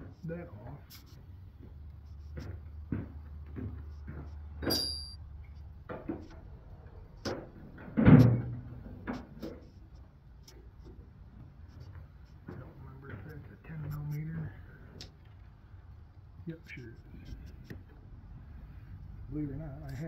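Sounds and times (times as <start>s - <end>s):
hand tools clicking and knocking: 2.9s - 5.2s
metallic clink: 4.6s - 5.2s
loud clunk: 7.3s - 9.2s.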